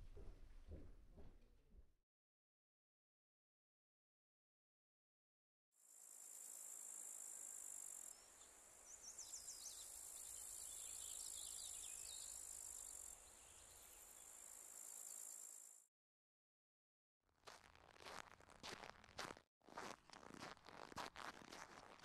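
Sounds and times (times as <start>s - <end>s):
quick insect chirps: 5.9s - 15.8s.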